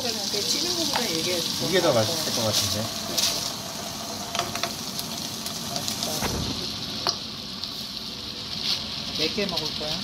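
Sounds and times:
shrimp sizzling in butter: 0:00.0 - 0:10.0
chopsticks tapping a pan: 0:04.3 - 0:04.8.

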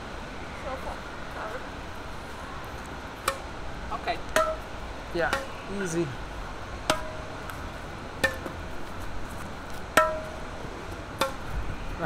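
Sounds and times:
racket striking shuttlecock: 0:03.2 - 0:03.5, 0:04.3 - 0:04.7, 0:05.3 - 0:05.6, 0:06.8 - 0:07.6, 0:08.2 - 0:08.6, 0:09.9 - 0:10.4, 0:11.2 - 0:11.5.

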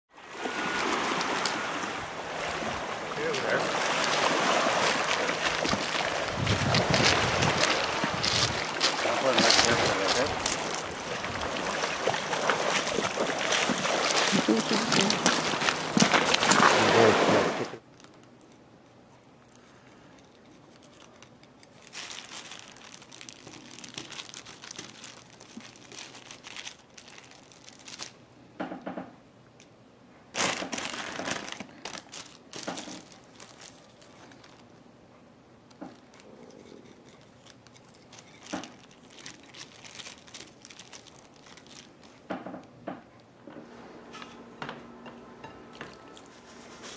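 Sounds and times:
plastic bag crinkling: 0:03.8 - 0:17.1, 0:17.8 - 0:18.6, 0:20.2 - 0:28.2, 0:30.4 - 0:34.8, 0:35.7 - 0:42.3.

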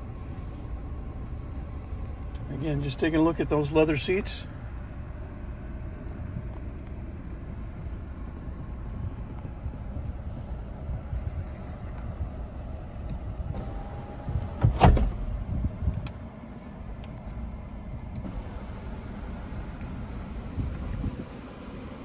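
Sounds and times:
low rumble: 0:04.4 - 0:21.8
sunroof motor running: 0:13.5 - 0:14.7, 0:18.1 - 0:22.0.

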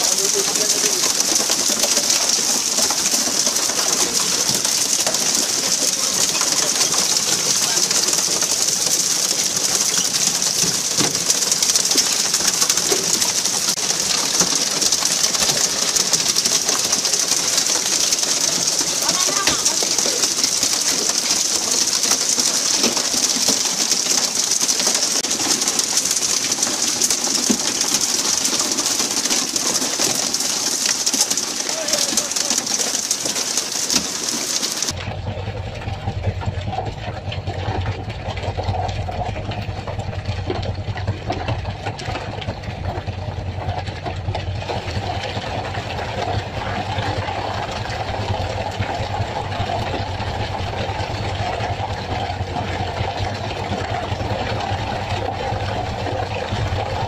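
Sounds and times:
water spray splashing along hull: 0:00.0 - 0:35.0
low uneven rumble: 0:34.9 - 0:57.0.

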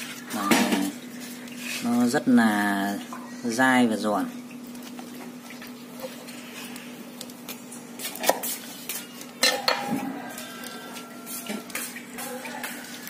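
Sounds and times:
metal utensils clinking on cutting board: 0:09.4 - 0:10.0.

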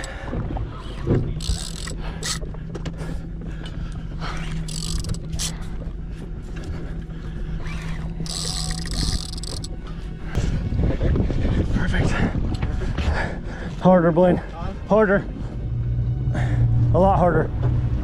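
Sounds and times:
outboard engine humming: 0:00.0 - 0:10.7
low rumble: 0:00.0 - 0:18.0.

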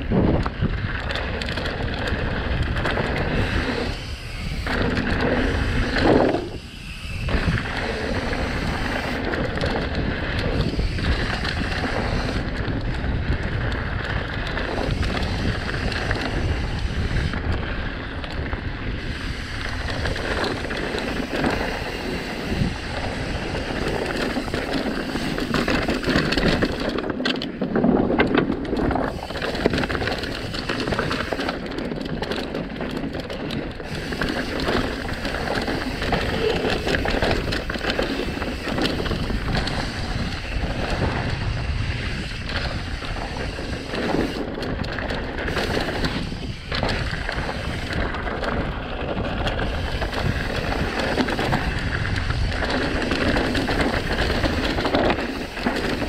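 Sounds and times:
bike rattling over bumps: 0:00.0 - 0:56.0
tyres rolling over dirt and rocks: 0:00.0 - 0:56.0
wind on microphone: 0:00.0 - 0:56.0.

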